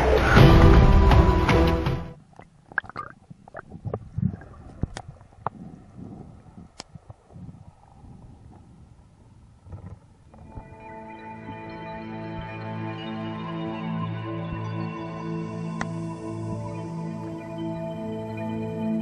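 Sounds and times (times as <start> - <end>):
music: 0.0 - 2.2, 10.4 - 19.0
sharp underwater clicks: 2.3 - 5.7, 6.6 - 7.3
low muffled rumbles: 2.7 - 10.9.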